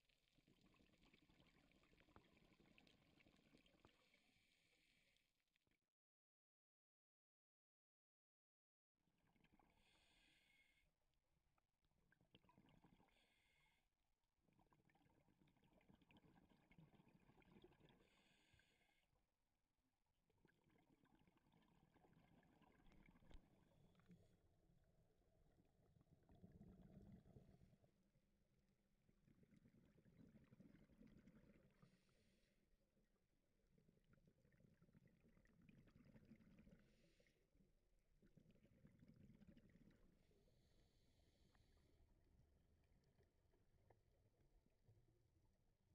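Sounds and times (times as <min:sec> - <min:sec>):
rumbling exhaled bubbles: 0:26.2 - 0:27.8, 0:38.4 - 0:40.4.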